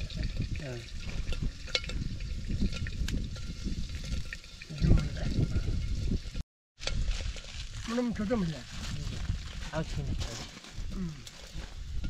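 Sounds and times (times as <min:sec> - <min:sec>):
water sounds: 0:00.0 - 0:08.7
people talking: 0:00.6 - 0:00.9, 0:04.7 - 0:05.4.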